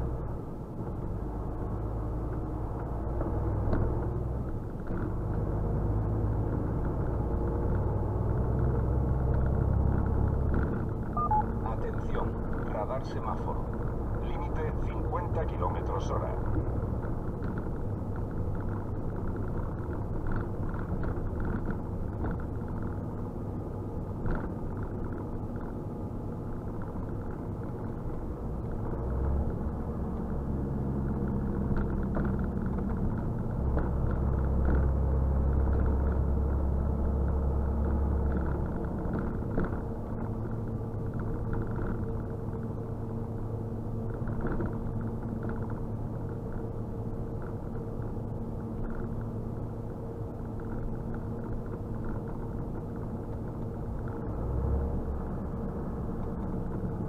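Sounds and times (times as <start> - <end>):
truck engine droning: 0.0 - 57.0.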